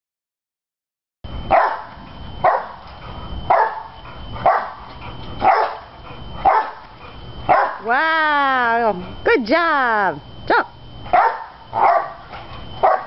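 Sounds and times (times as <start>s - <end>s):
dog barking: 1.5s - 2.8s, 3.5s - 4.8s, 5.4s - 5.8s, 6.4s - 6.8s, 7.5s - 7.8s, 11.1s - 12.2s, 12.8s - 13.0s.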